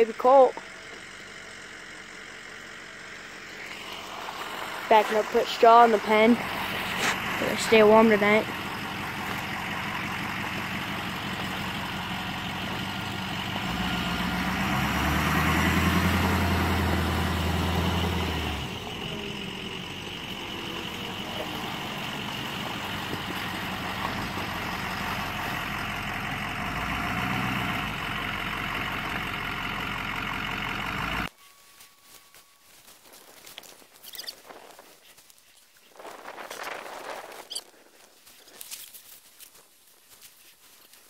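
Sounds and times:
truck engine revving: 0.0 - 31.3.

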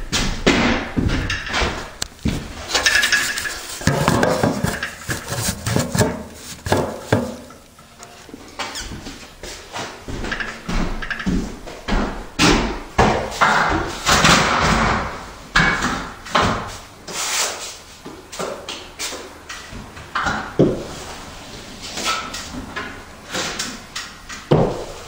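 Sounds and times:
trowel scraping joint compound: 2.6 - 7.8.

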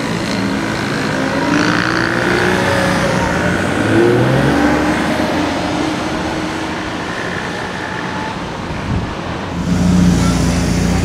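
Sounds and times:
traffic on a road: 0.0 - 11.0
sports car engine at low revs: 9.6 - 11.0.

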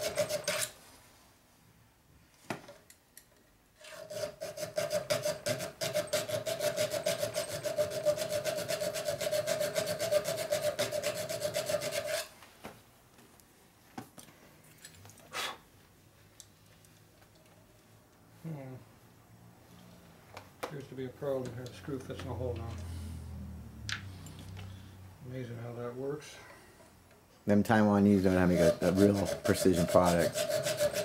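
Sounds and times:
hand file rasping metal: 0.0 - 0.8, 3.8 - 12.3, 28.0 - 31.0.

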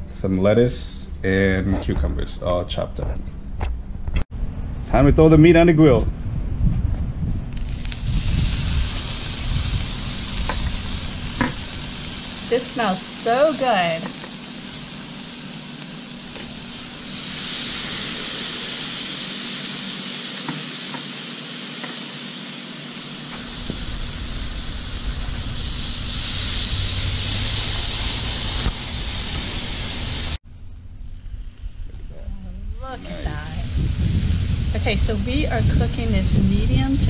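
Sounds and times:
steaks sizzling on a grill: 7.5 - 30.4, 32.8 - 37.0.

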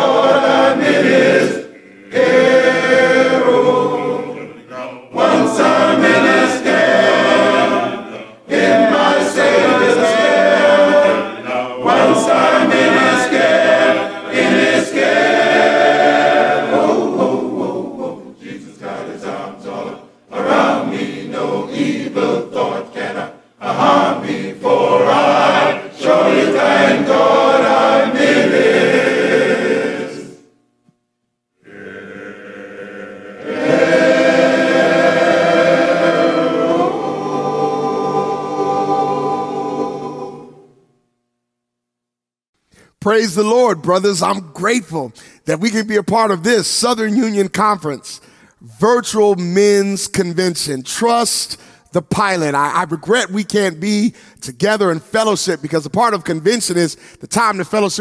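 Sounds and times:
men's choir singing a cappella: 0.0 - 30.5, 31.6 - 40.8.

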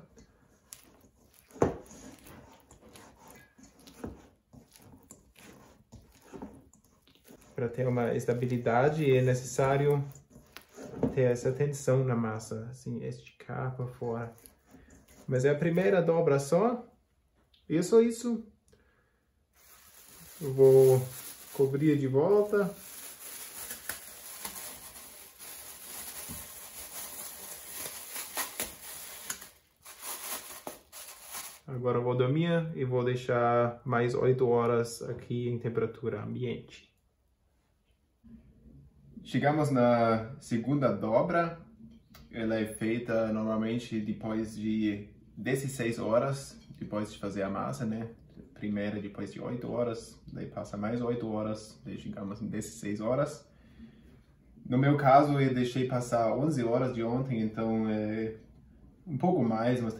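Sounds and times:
plastic bag rustling and crinkling: 0.0 - 11.5, 19.6 - 31.7
dough squelching in steel bowl: 0.0 - 12.4, 13.6 - 16.6.

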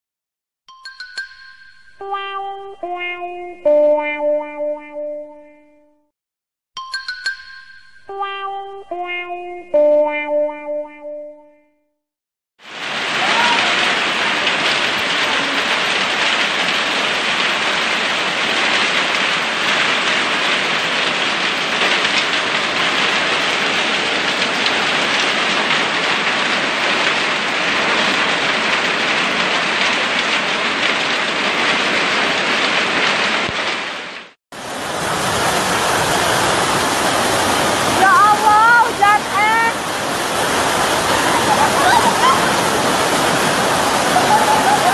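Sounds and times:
heavy hail and rain: 12.7 - 44.9.

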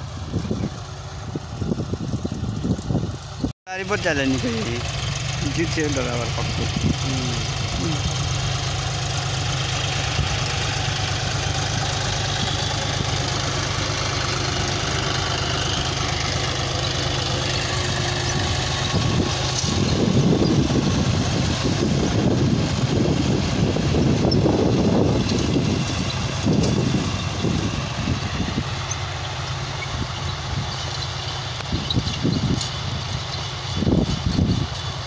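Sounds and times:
tractor diesel engine running: 0.0 - 35.0
gusty rushing noise: 18.9 - 28.7.

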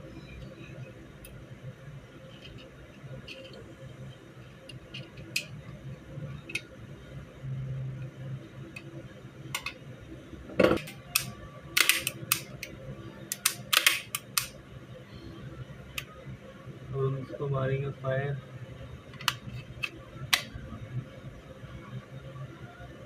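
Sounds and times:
metallic clicks of pistol parts: 10.8 - 12.7, 13.3 - 14.5.

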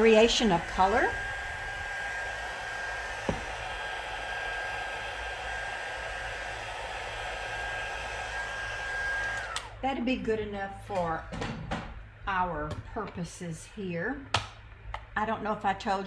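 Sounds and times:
heat gun blowing with whine: 0.0 - 9.9.

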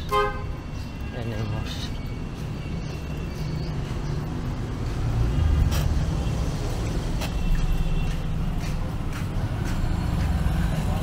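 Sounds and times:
passing motor vehicles rumble: 0.0 - 11.0.

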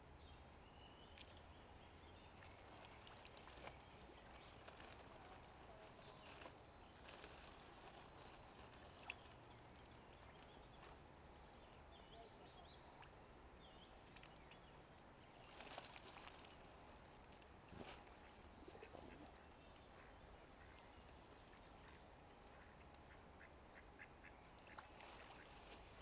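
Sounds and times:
birds dabbling in shallow water: 0.6 - 26.0.

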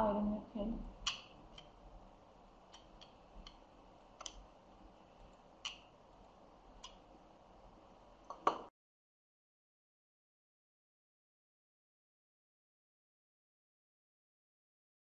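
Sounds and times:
faint sharp clicks: 4.2 - 4.4.

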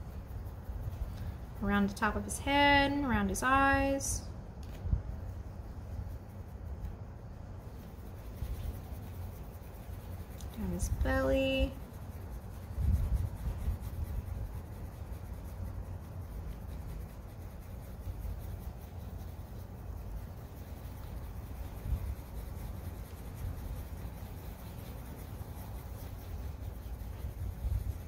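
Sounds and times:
pen scratching on paper: 7.8 - 28.0.

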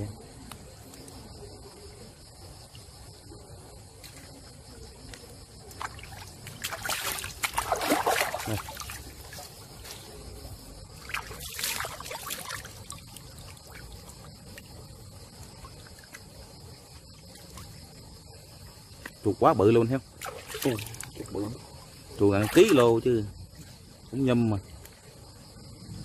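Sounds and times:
crickets chirring: 0.0 - 26.0
water splashing and sloshing: 5.1 - 23.9.

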